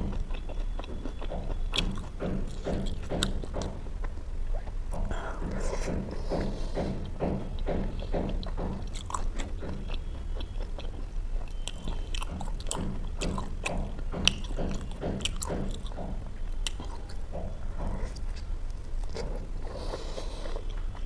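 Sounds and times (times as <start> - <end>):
person chewing food: 0.0 - 21.0.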